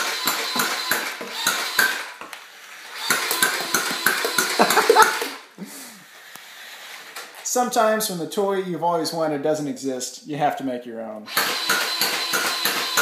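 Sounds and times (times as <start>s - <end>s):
toy dart gun firing clacks: 0.0s - 2.2s, 3.0s - 4.8s, 11.3s - 13.0s.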